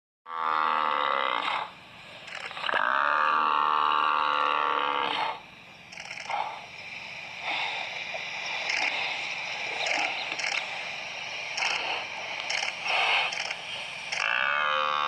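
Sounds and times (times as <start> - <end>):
buffalo bellowing in distress: 2.8 - 5.4, 14.2 - 15.0.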